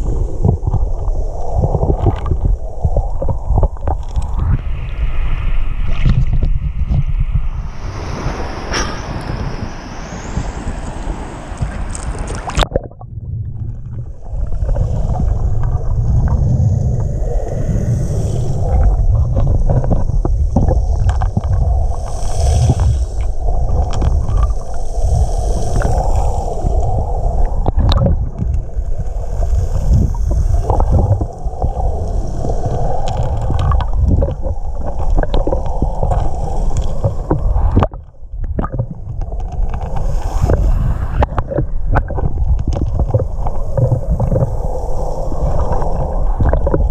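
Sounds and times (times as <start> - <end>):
muffled underwater water rumble: 0.0 - 46.9
sharp clicks underwater: 0.2 - 4.6, 11.6 - 16.4, 18.6 - 24.9, 25.8 - 28.7, 29.9 - 44.6, 45.4 - 46.9.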